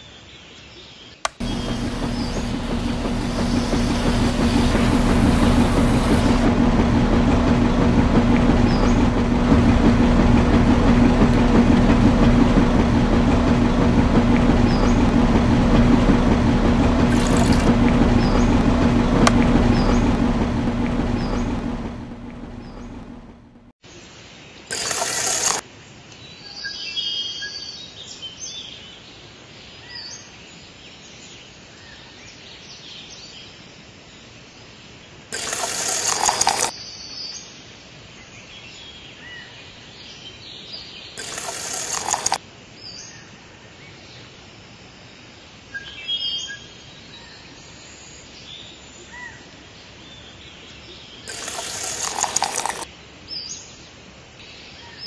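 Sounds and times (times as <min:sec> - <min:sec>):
loud rushing noise bursts: 0:01.3 - 0:23.7.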